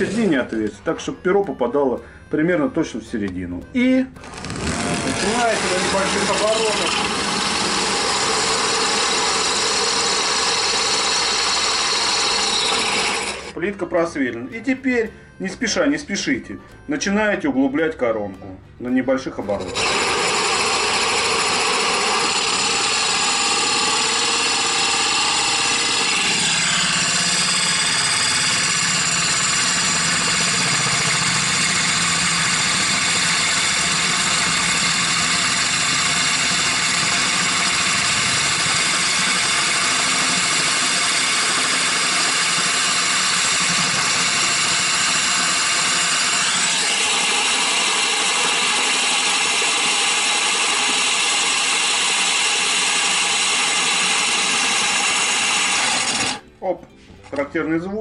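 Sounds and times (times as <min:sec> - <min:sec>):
hole saw grinding into tile: 0:00.0 - 0:00.5, 0:04.2 - 0:13.6, 0:19.4 - 0:56.4
cordless drill running: 0:04.2 - 0:13.6, 0:19.5 - 0:56.4.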